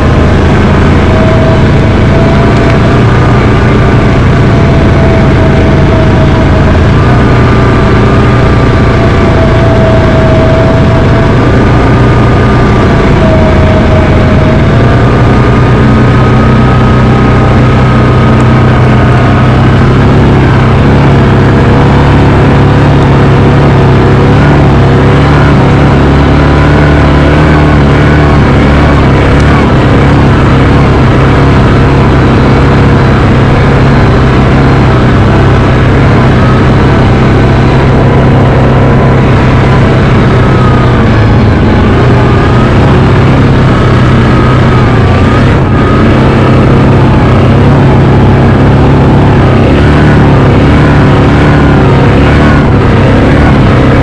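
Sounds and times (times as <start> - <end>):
vehicle engine running: 0.0 - 54.0.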